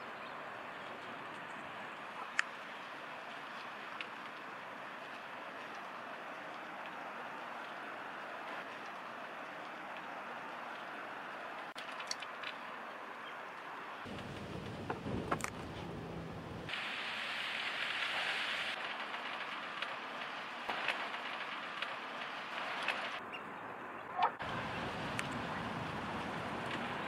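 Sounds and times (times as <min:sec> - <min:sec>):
low rumble: 0:14.1 - 0:16.7
faint clicks: 0:25.1 - 0:25.4.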